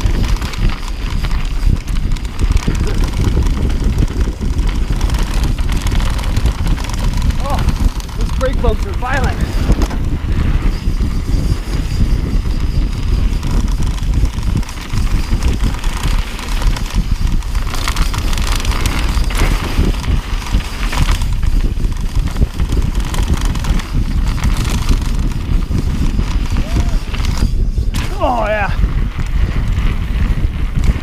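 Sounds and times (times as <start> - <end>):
bike tyres rattling on trail: 0.0 - 31.0
wind buffeting microphone: 0.0 - 31.0.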